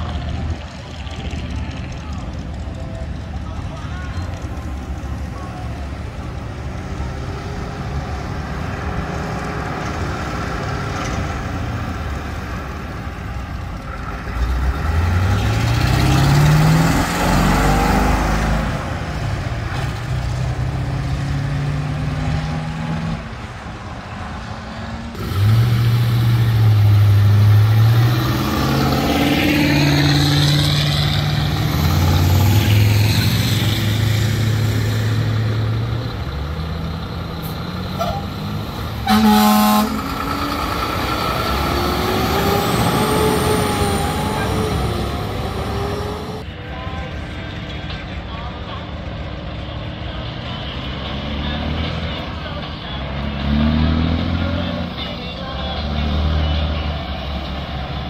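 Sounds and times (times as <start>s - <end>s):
vehicles driving past: 0.0s - 58.0s
horn blast: 39.0s - 40.3s.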